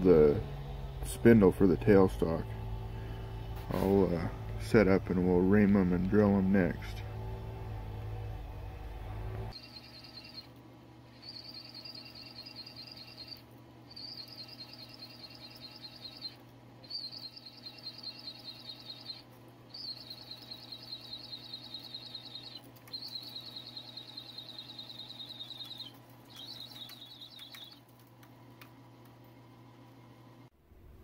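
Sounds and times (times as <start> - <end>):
drill press motor hum: 0.0 - 10.6.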